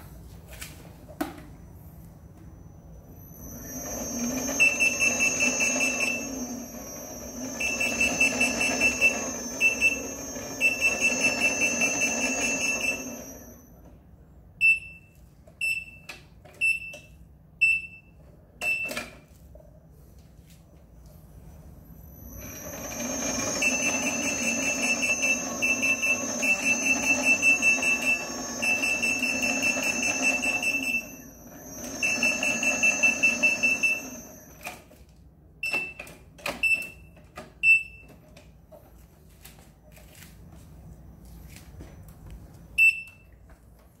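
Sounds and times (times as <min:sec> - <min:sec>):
electric whine: 0:01.7 - 0:13.7, 0:21.8 - 0:34.8
single beeps: 0:02.4 - 0:13.7
rapid high warning beeps: 0:02.8 - 0:13.7, 0:22.0 - 0:34.7.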